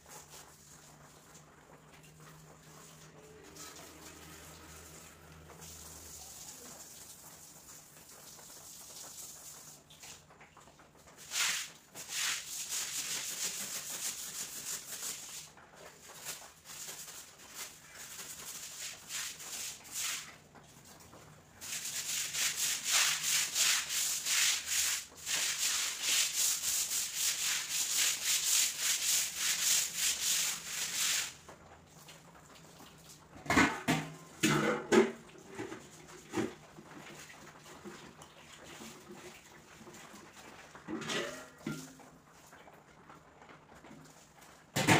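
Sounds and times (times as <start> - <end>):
hose spraying water: 2.4 - 10.2, 11.1 - 21.0, 21.6 - 31.5
stiff broom scrubbing wet concrete: 11.2 - 15.5, 16.1 - 20.4, 21.6 - 31.4.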